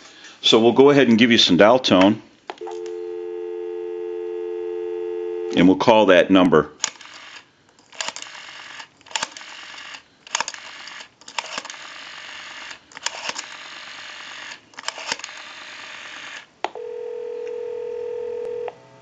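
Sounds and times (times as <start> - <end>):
telephone ringback tone: 2.6 - 5.7, 16.8 - 19.0
rotary phone dial clicking and spinning: 6.8 - 16.4.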